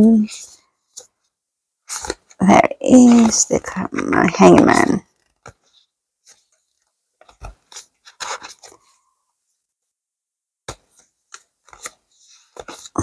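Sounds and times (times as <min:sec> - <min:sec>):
cards tapping and scraping: 0:01.9 - 0:09.0, 0:10.6 - 0:13.0.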